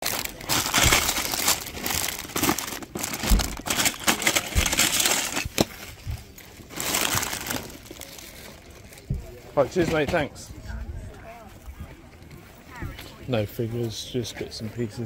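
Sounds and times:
plastic bricks clattering in tub: 0:00.0 - 0:05.8
plastic packets crinkling: 0:00.0 - 0:09.1.

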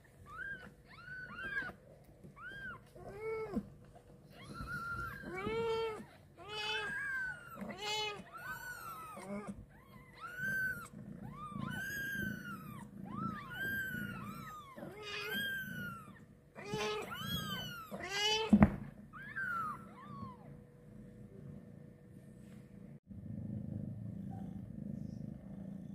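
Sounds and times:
kittens mewing: 0:00.2 - 0:18.6.

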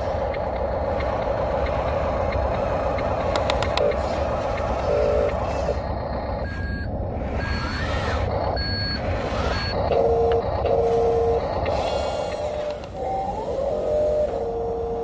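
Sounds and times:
steady low hum: 0:00.0 - 0:15.0
reverse warning beeps: 0:03.8 - 0:15.0.

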